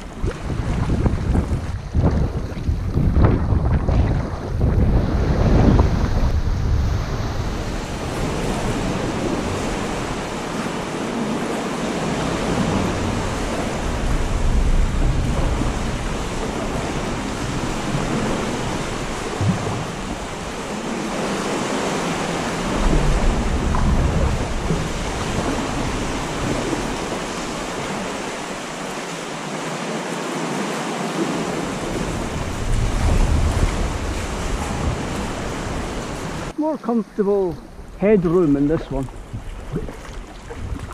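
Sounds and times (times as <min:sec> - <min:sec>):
water sloshing against rock: 0:00.0 - 0:40.9
low rumbling surge: 0:02.8 - 0:09.0.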